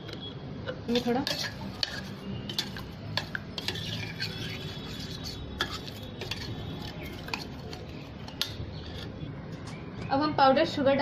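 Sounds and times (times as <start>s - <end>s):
spoon clinking in steel bowl: 0.9s - 9.1s.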